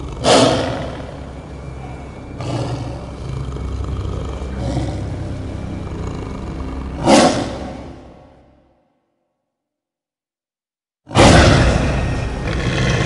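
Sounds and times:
low rumbling roar: 11.2s - 13.0s.

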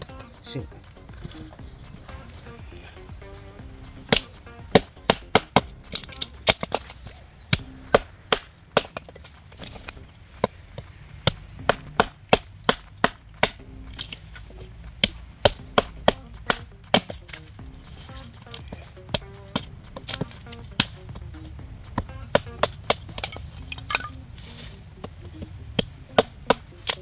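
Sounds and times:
knife chopping wood: 3.9s - 14.4s, 15.0s - 21.2s, 21.9s - 25.2s, 25.8s - 27.0s.

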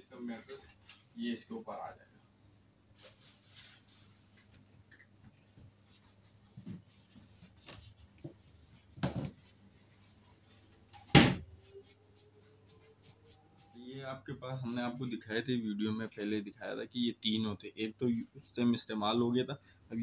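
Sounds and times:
mattress knocking on wooden cot: 9.0s - 9.4s.

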